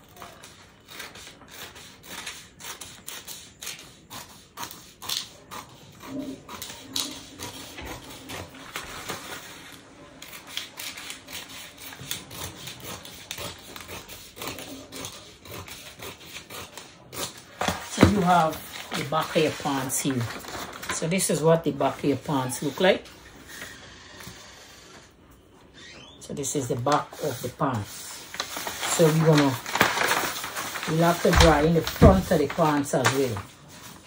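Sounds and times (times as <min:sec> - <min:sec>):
scissors snipping paper: 0:00.0 - 0:09.2, 0:10.2 - 0:20.9, 0:28.3 - 0:33.4
paper rustling: 0:06.7 - 0:13.9, 0:17.4 - 0:24.5, 0:26.9 - 0:34.0.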